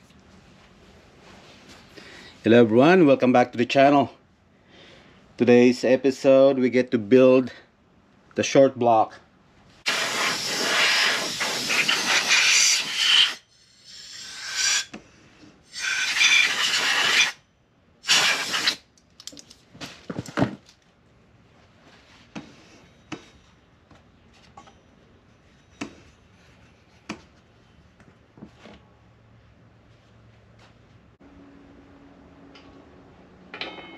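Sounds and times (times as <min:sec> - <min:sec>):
air blow gun blasting: 0:09.9 - 0:14.9, 0:15.7 - 0:17.4, 0:18.0 - 0:18.8.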